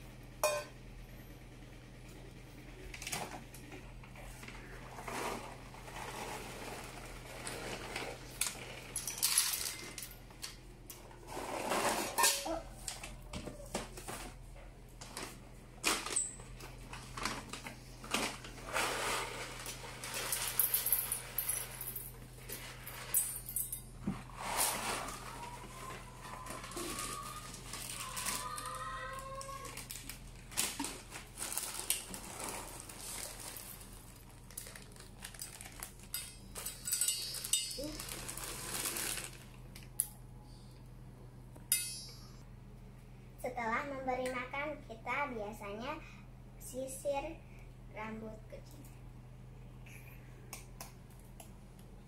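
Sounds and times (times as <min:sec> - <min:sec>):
plastic bags crinkling: 0:15.0 - 0:23.6, 0:24.3 - 0:40.0
kibble rattling into metal bowl: 0:31.6 - 0:39.4.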